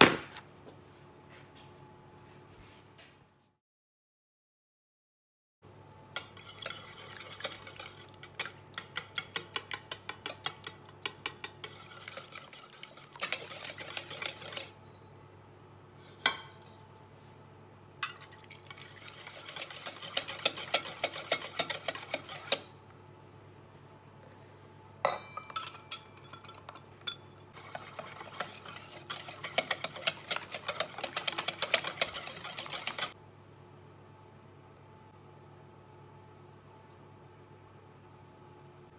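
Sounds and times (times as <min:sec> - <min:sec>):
whisk knocking against bowl: 0:06.2 - 0:14.7, 0:18.8 - 0:22.7, 0:27.6 - 0:33.2
whisk beating in metal bowl: 0:06.2 - 0:14.8, 0:18.6 - 0:22.7, 0:26.2 - 0:33.2.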